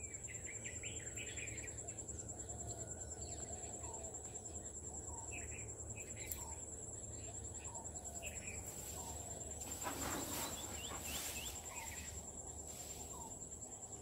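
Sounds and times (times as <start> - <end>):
insect trill: 0.0 - 14.0
bird chirps: 3.2 - 13.4
bird calling: 7.2 - 12.2
rustling noise: 8.6 - 13.5.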